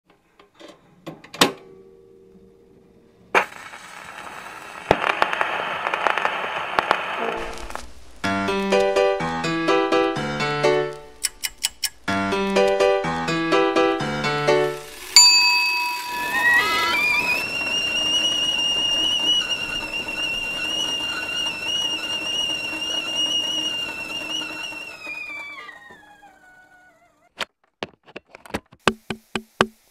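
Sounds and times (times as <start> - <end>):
kettle hissing and crackling: 3.3 - 27.4, 28.8 - 29.9
sudden whoosh: 7.1 - 10.4
china clinking: 15.1 - 17.3.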